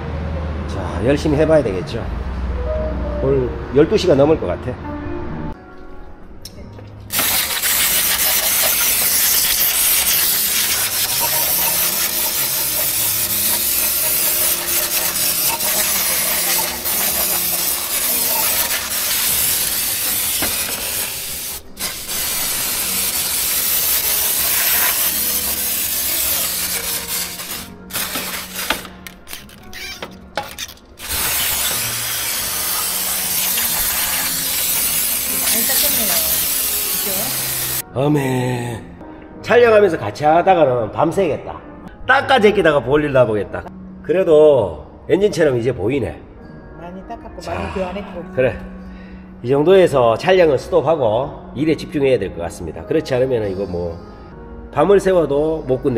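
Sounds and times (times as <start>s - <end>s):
pressurised spray hissing: 7.1s - 29.0s, 31.0s - 37.8s.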